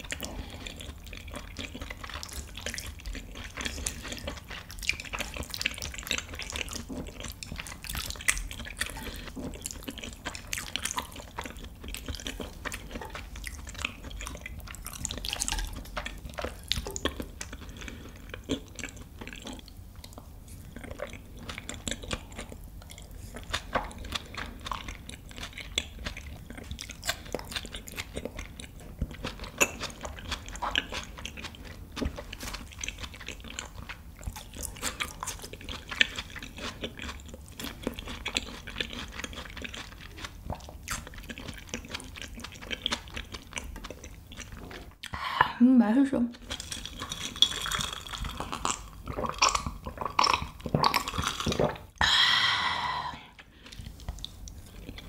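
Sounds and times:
person chewing food: 0.0s - 45.2s, 46.3s - 55.0s.

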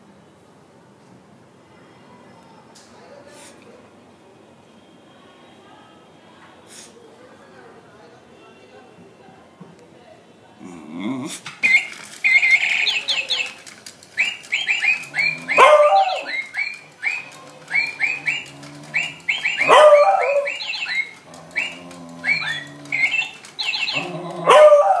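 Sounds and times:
toy parrot chirping: 11.6s - 24.5s
dog baying: 14.3s - 25.0s.

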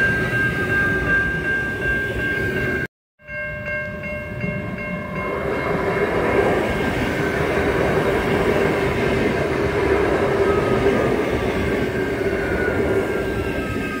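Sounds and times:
train hum: 3.6s - 14.0s
train wheels rumbling: 4.2s - 14.0s.

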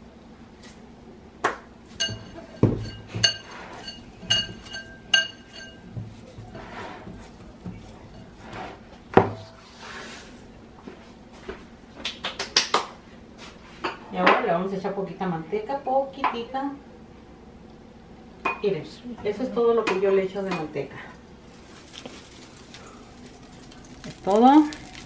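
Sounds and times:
glass bowl clinking: 2.0s - 5.9s
meat squishing by hand: 21.4s - 25.0s.

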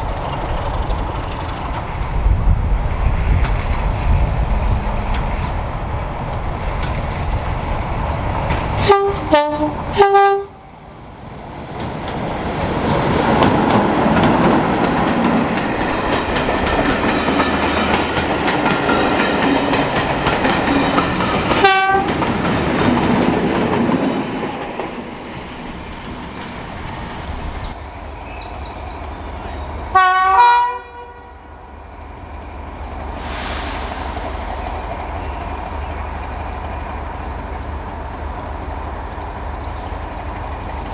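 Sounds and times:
diesel locomotive passing: 0.0s - 40.9s
locomotive two-tone horn blasts: 8.8s - 10.6s, 21.6s - 22.1s, 29.9s - 31.4s.

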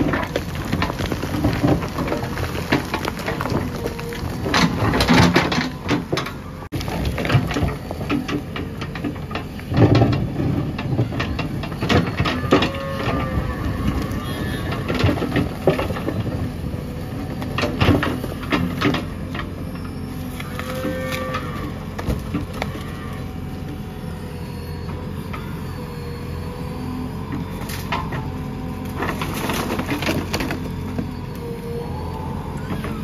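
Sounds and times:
bricks and timber clattering: 0.0s - 12.9s
diesel engine under load: 0.0s - 33.0s.

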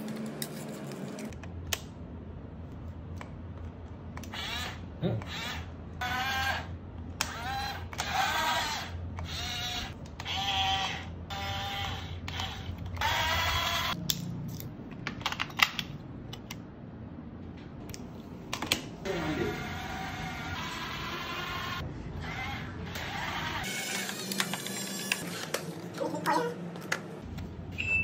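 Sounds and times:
toy electric motor whining: 4.2s - 14.0s, 19.1s - 25.4s.

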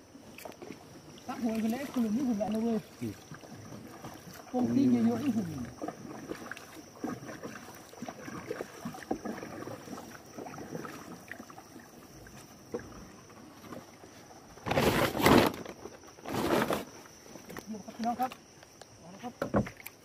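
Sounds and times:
paddle splashes: 0.0s - 18.4s, 19.2s - 20.0s
water lapping: 0.0s - 18.5s
knocks on canoe hull: 19.4s - 19.8s.

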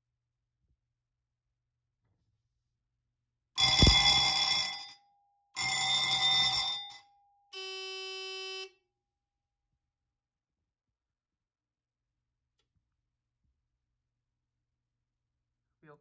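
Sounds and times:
fire alarm bell ringing: 3.6s - 5.0s, 5.6s - 7.9s.

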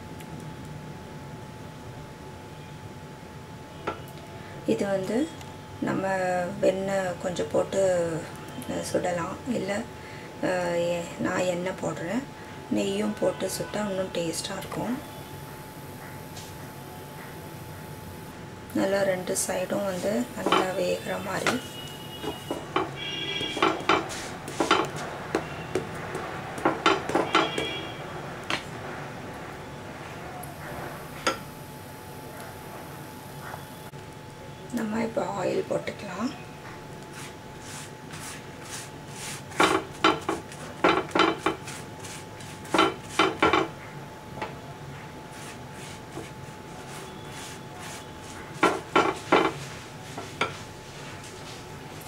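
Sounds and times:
wooden spatula knocking on pan: 20.4s - 20.8s, 22.2s - 27.8s, 39.6s - 41.6s, 42.7s - 43.7s, 48.6s - 49.6s
brush clinking against pan: 20.4s - 25.0s.

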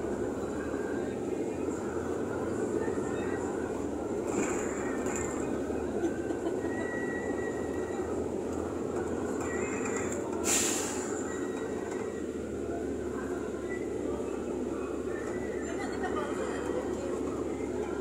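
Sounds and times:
vehicle engine and road noise: 0.0s - 18.0s
short hiss: 10.4s - 11.1s.

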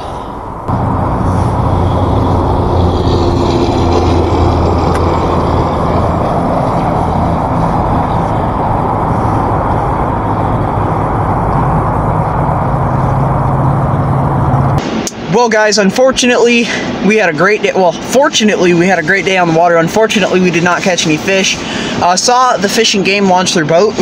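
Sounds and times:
low droning hum: 0.0s - 15.3s
loud rumbling noise: 0.0s - 22.7s.

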